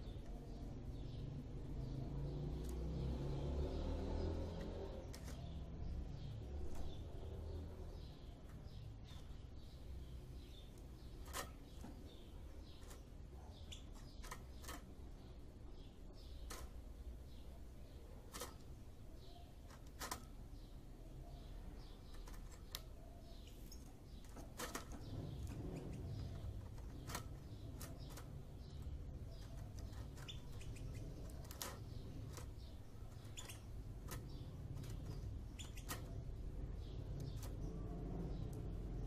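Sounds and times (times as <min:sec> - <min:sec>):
faint bird chirps: 0:04.2 - 0:39.0
bird pecking and rustling: 0:04.7 - 0:05.6, 0:10.4 - 0:15.2, 0:16.2 - 0:20.6, 0:22.0 - 0:37.8.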